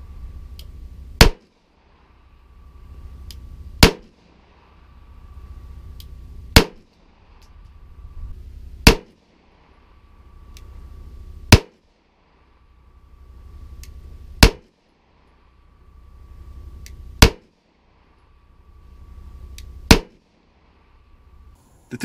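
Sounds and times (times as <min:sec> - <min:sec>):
pistol shots: 0:06.6 - 0:06.8, 0:08.8 - 0:09.2.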